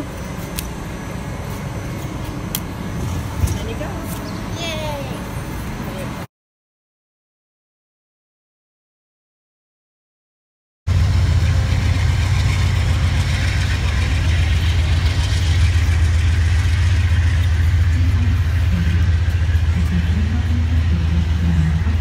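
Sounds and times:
train engine rumble: 0.0s - 6.3s, 10.9s - 22.0s
faint voices: 17.8s - 22.0s.

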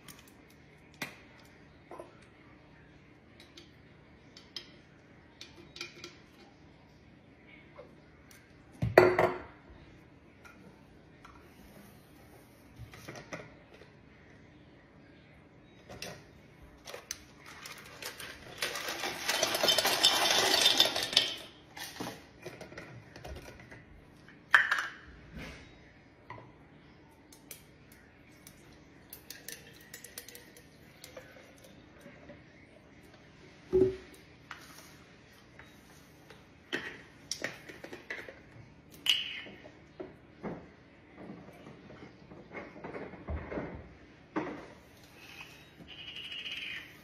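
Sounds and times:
small objects rattling in container: 17.5s - 22.0s.

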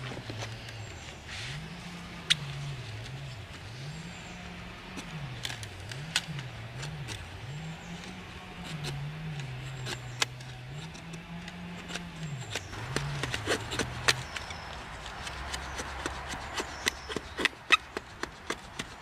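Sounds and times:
low wavering drone: 0.6s - 14.9s
sharp ticks and clicks: 8.0s - 19.0s
knife scraping wet wood: 8.6s - 19.0s.

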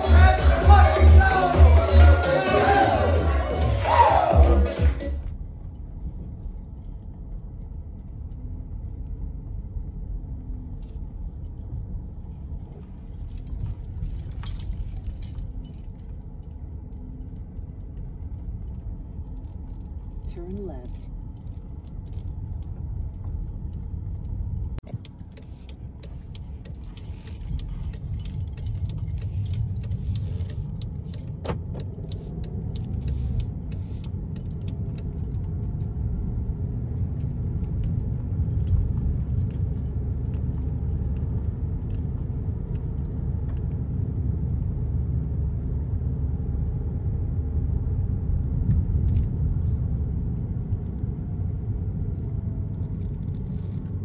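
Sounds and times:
high-pitched jangling and clicking: 0.0s - 44.1s, 52.0s - 54.0s
car road rumble from cabin: 0.0s - 54.0s.

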